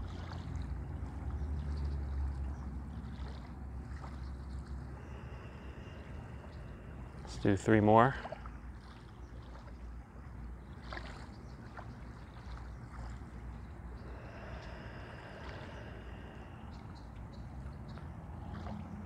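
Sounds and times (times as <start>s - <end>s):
low outdoor rumble: 0.0s - 19.0s
slow deep breathing through nose: 4.7s - 8.7s, 13.6s - 18.8s.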